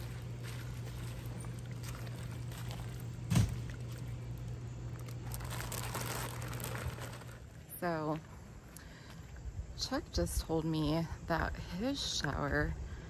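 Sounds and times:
greens stirred in pot: 0.0s - 7.4s
low hum: 0.0s - 11.6s.

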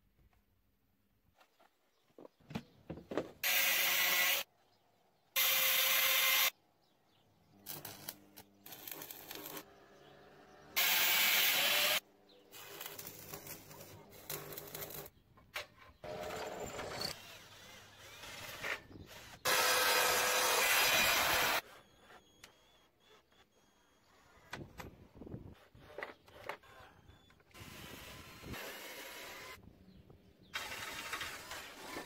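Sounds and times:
knocking and handling noises: 1.4s - 3.4s.

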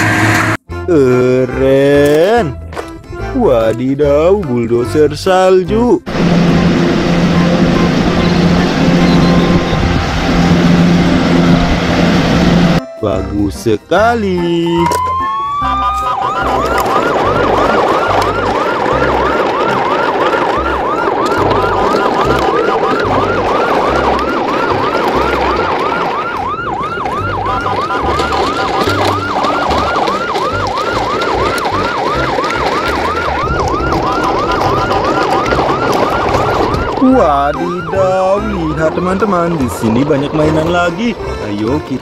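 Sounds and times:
electronic siren yelping: 6.1s - 11.9s, 14.7s - 41.4s.

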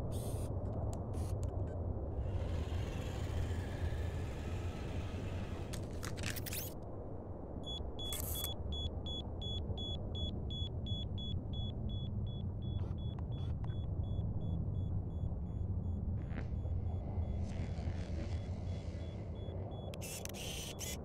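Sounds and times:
steady low rumble: 8.7s - 20.8s
rapid high electronic beeps: 18.3s - 21.0s.

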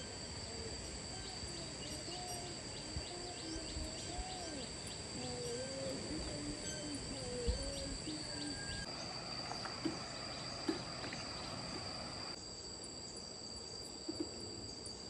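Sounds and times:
high-pitched insect drone: 0.0s - 15.0s
low gliding animal calls: 0.4s - 12.4s
birds chirping: 1.7s - 12.4s.

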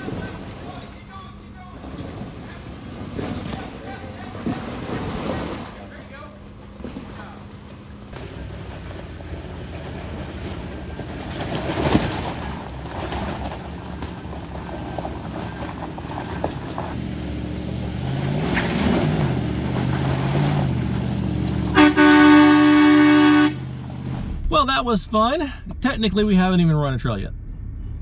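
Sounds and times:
vehicle engine revving: 8.0s - 24.6s
vehicle horn blast: 21.7s - 23.7s.

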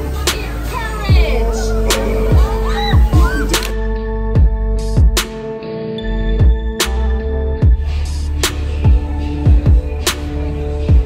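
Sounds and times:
sustained synth notes: 1.0s - 8.3s
deep kick drums: 1.1s - 3.6s, 4.3s - 5.4s, 6.4s - 6.8s, 7.6s - 8.0s, 8.8s - 10.0s.

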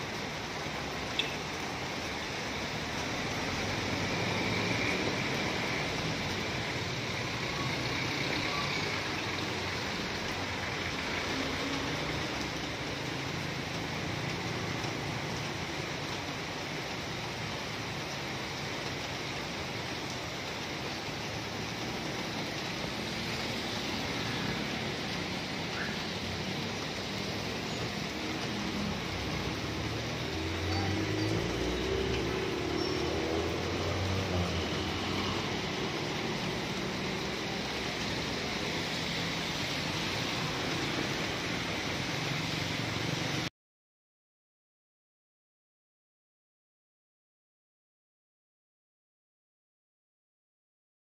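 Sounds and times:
heavy rain on street: 0.0s - 43.5s
vehicles passing on wet road: 0.0s - 43.5s.

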